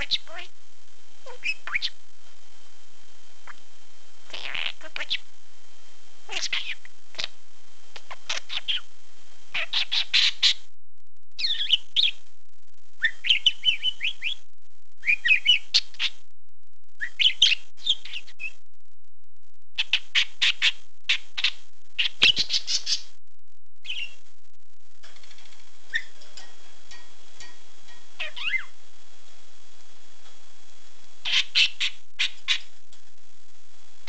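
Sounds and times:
budgerigar chattering: 1.3s - 1.9s, 4.3s - 5.2s, 6.3s - 7.3s, 8.1s - 8.8s, 9.6s - 10.6s, 19.8s - 23.0s, 31.2s - 32.6s.

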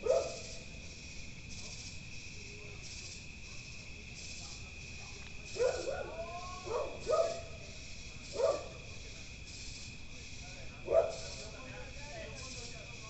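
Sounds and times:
dog barking: 0.0s - 0.5s, 5.0s - 7.6s, 8.3s - 8.8s, 10.8s - 11.3s
crickets chirping: 0.0s - 13.0s.

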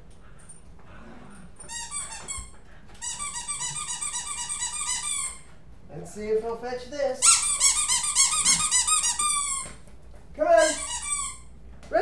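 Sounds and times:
squeaky dog toy squeaking: 1.7s - 5.5s, 7.2s - 9.8s, 10.6s - 11.5s.

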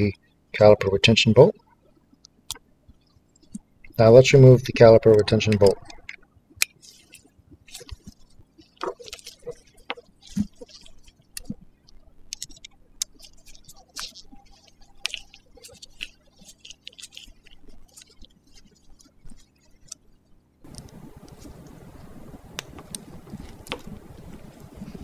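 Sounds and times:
small metallic clicks and scrapes: 5.0s - 25.0s.

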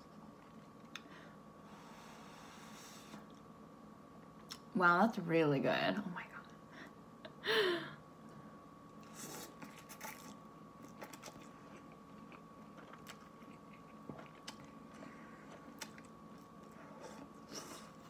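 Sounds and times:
slurping and chewing noodles: 9.0s - 18.0s.

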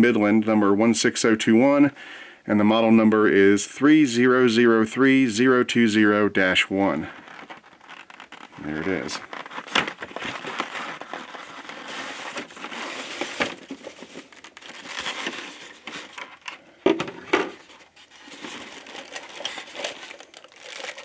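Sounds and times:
packaging rustling and scraping: 7.0s - 21.0s.

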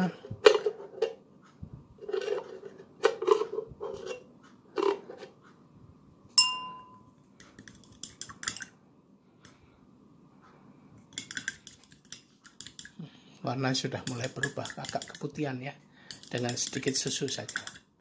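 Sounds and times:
metal spoon clinking against glass: 6.4s - 7.1s, 16.1s - 17.8s.

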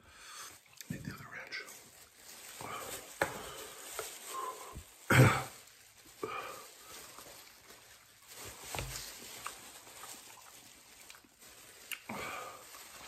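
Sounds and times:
man breathing hard and gasping: 0.0s - 0.6s, 2.6s - 5.5s, 12.1s - 12.7s
man chewing: 9.4s - 12.2s.

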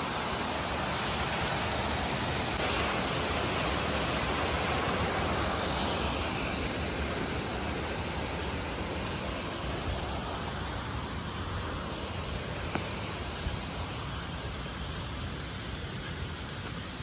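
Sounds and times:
waterfall pouring over rocks: 0.0s - 17.0s.

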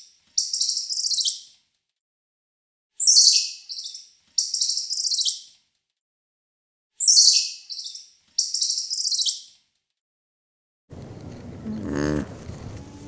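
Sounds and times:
high-pitched chirping call: 7.0s - 9.5s.

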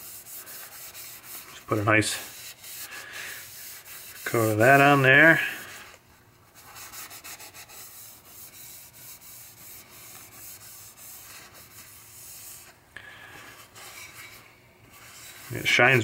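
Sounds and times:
rag rubbing wood: 0.0s - 5.9s, 6.6s - 12.8s.

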